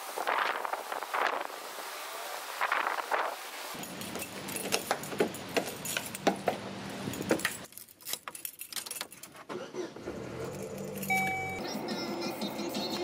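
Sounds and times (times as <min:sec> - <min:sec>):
keys jangling on key ring: 0:03.8 - 0:09.4, 0:10.4 - 0:11.6.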